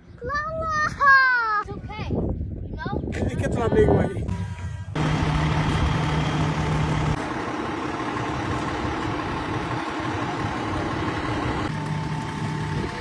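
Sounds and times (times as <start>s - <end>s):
diesel engine idling: 4.3s - 13.0s.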